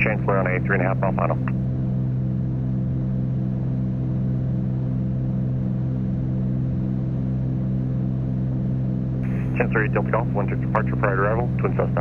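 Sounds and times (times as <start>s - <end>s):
propeller aircraft engines droning: 0.0s - 12.0s.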